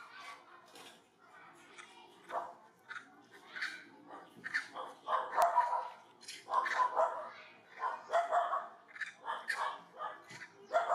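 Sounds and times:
animal calls: 0:07.8 - 0:10.9.

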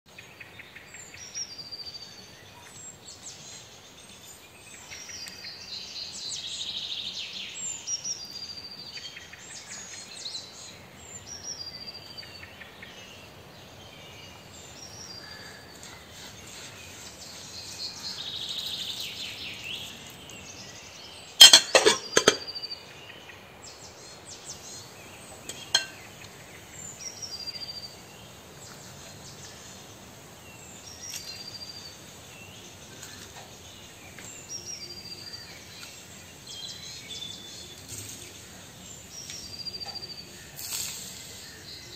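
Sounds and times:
small birds chirping: 0:00.1 - 0:41.9
glass bowl clinks and knocks: 0:21.4 - 0:22.6, 0:25.5 - 0:26.0.

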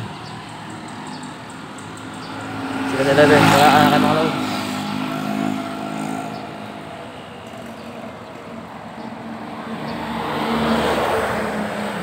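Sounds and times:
background street traffic: 0:00.0 - 0:12.0
vehicle driving past: 0:02.2 - 0:07.9.

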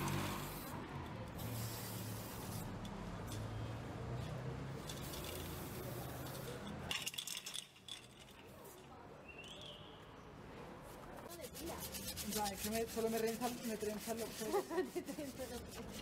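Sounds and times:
spray paint can hissing: 0:00.0 - 0:03.4, 0:04.8 - 0:07.2.

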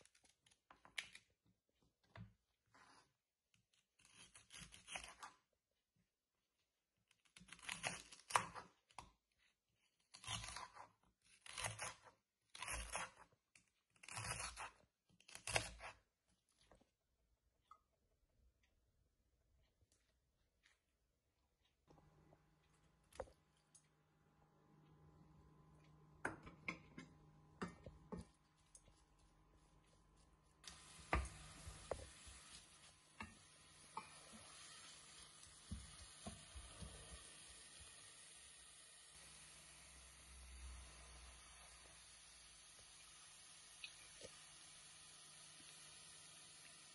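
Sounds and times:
knife slicing fennel: 0:07.4 - 0:08.7, 0:10.1 - 0:13.3, 0:14.0 - 0:16.1
leeks sizzling in oil: 0:30.6 - 0:46.9.

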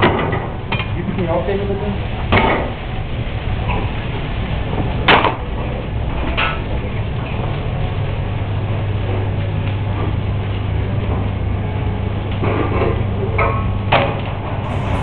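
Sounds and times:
gas burners rushing hum: 0:14.6 - 0:15.0.

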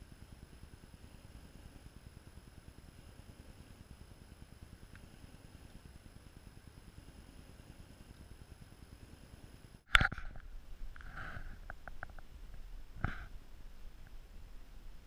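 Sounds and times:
small ticks: 0:00.0 - 0:13.4
faint high whine: 0:00.0 - 0:15.0
low rumbling noise: 0:09.1 - 0:15.0.

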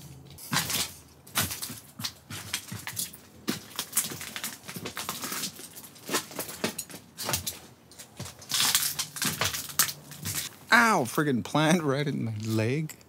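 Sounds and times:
footsteps crunching over debris: 0:00.4 - 0:10.7.

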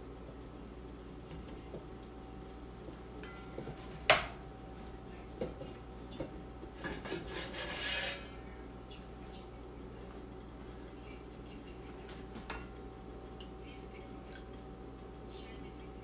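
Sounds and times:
metal bowl clanking: 0:06.8 - 0:08.4
metal utensils clattering: 0:06.8 - 0:08.4.

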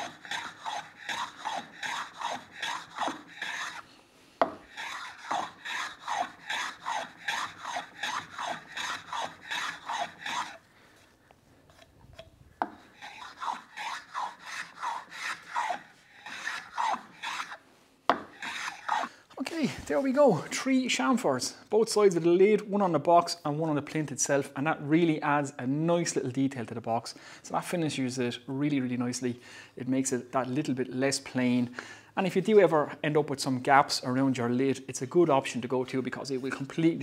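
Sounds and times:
hand plane shaving wood: 0:00.0 - 0:10.6, 0:12.6 - 0:20.2.

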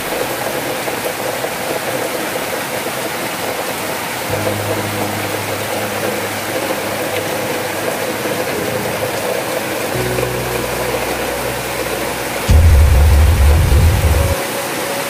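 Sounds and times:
low droning background music: 0:04.3 - 0:14.6
steady rushing hiss: 0:12.2 - 0:15.0.

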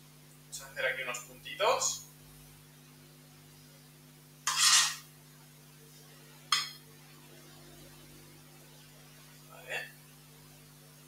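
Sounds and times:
spoon clinking on plate: 0:04.5 - 0:05.0
spoon scraping dishware: 0:04.5 - 0:05.0.

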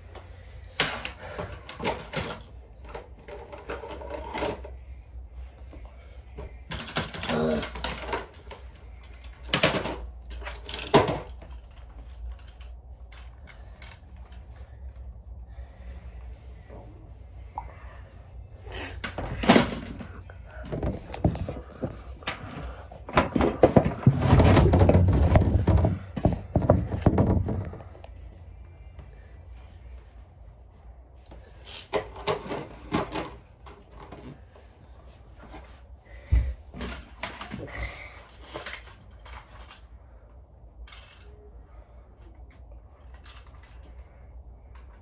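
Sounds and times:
rubbing and bumping against phone: 0:19.0 - 0:28.1.

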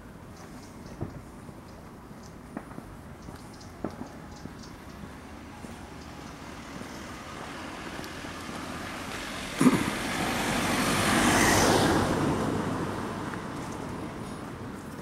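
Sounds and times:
car driving past: 0:05.1 - 0:14.8.

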